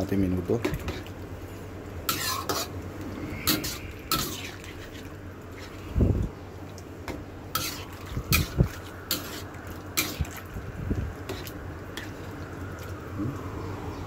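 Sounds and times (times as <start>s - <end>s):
metal spatula scraping a wok: 2.1s - 5.8s, 7.5s - 10.4s, 11.2s - 12.2s.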